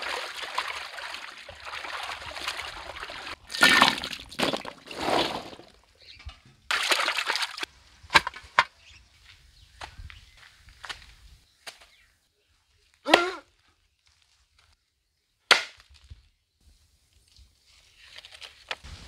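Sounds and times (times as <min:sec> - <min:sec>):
water sloshing and splashing: 0:00.0 - 0:05.9, 0:06.7 - 0:07.7.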